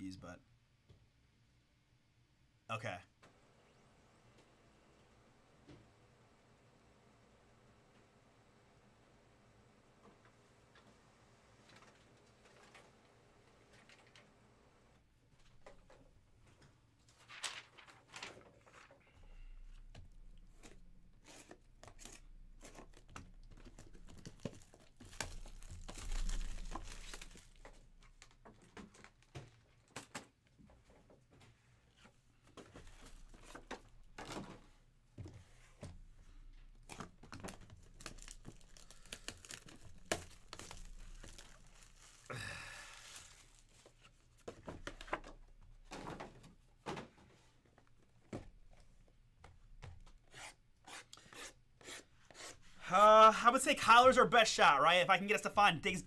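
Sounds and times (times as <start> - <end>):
plastic wrap crinkling and tearing: 17.3 - 18.4, 21.3 - 28.3, 36.9 - 44.0.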